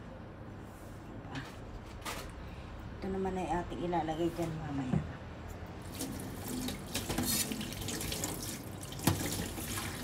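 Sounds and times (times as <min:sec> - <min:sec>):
water running from a tap: 0:05.8 - 0:10.0
water splashing: 0:05.8 - 0:10.0.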